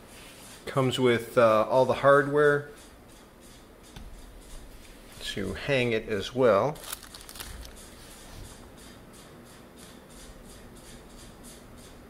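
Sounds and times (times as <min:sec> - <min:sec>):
plastic bag crinkling: 0:06.7 - 0:07.8.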